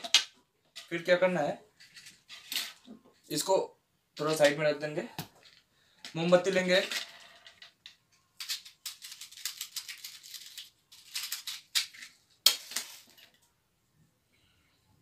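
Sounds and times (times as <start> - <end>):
crinkly rustling and rattling: 1.7 - 3.2, 6.4 - 13.5.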